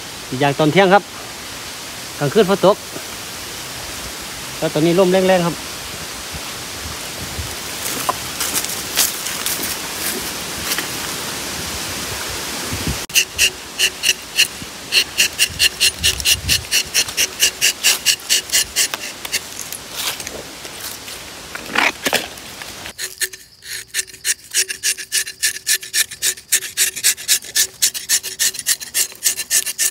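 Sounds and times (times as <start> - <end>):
wind noise: 5.5 - 22.9
knife rasping along tree bark: 13.1 - 20.3, 22.9 - 29.9.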